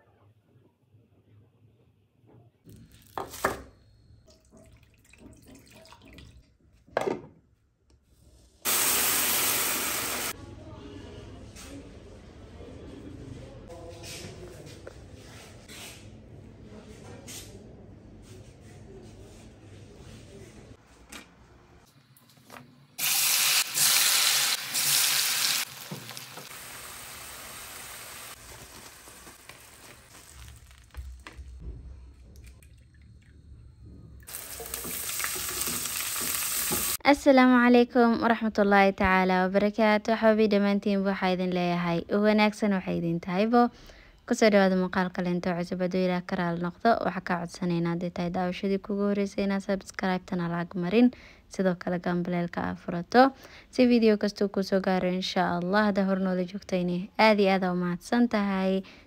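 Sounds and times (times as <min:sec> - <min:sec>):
potato chips sizzling in oil: 0:08.7 - 0:10.4, 0:23.0 - 0:31.3, 0:34.3 - 0:37.0.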